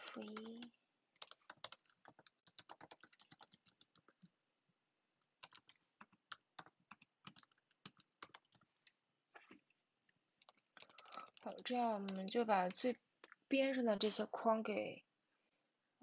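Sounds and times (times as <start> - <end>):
computer keyboard typing: 0.0 - 4.3, 5.4 - 9.0, 10.4 - 13.4.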